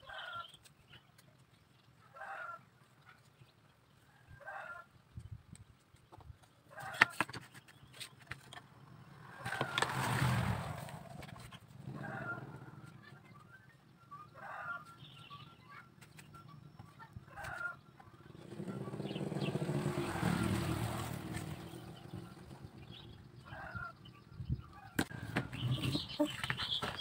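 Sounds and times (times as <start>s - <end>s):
chickens clucking: 24.7s - 27.0s.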